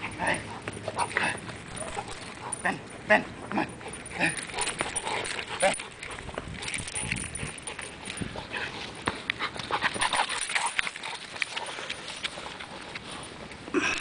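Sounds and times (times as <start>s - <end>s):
sharp clicks and rattles: 4.4s - 8.3s.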